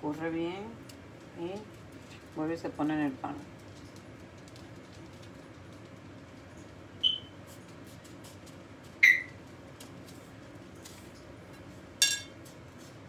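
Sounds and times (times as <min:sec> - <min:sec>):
faint room hum: 0:00.0 - 0:13.0
utensil clinking on ceramic bowl: 0:12.0 - 0:12.4.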